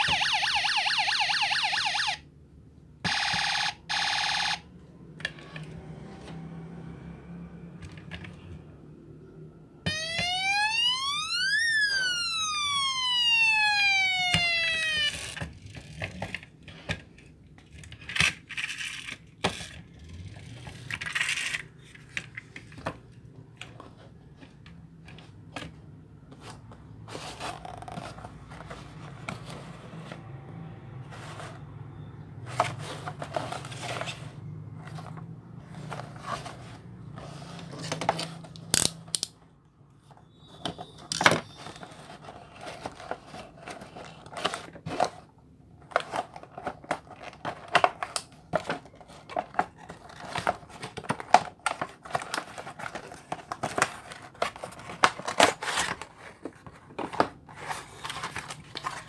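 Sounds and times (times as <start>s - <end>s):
toy police siren wailing: 0.0s - 2.2s, 3.1s - 4.6s, 9.8s - 15.5s
toy car and box handled: 5.2s - 6.6s, 7.7s - 8.7s, 11.2s - 39.4s, 40.0s - 59.0s.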